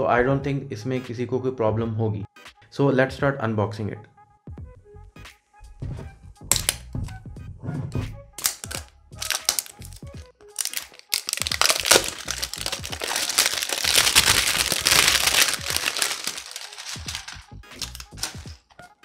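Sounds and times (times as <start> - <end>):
plastic wrap tearing and crinkling: 6.5 - 6.8, 8.4 - 18.8.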